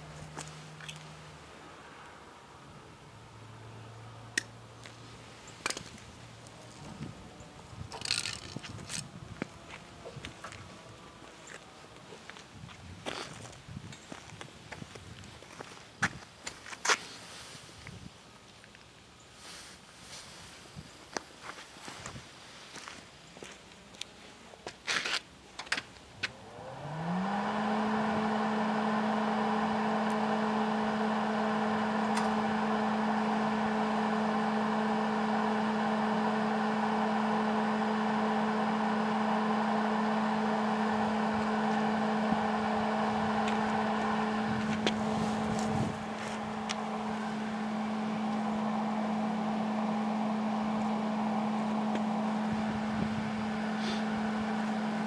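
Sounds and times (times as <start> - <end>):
welder motor humming: 26.4 - 55.0.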